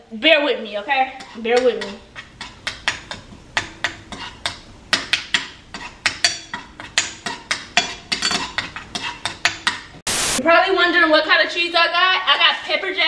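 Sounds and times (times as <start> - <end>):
spoon scraping a frying pan: 0.8 - 10.0.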